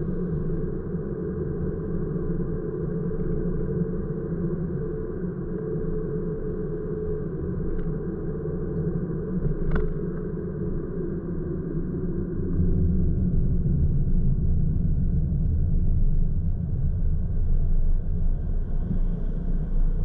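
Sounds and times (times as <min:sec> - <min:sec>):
car driving heard from inside: 0:17.3 - 0:20.0.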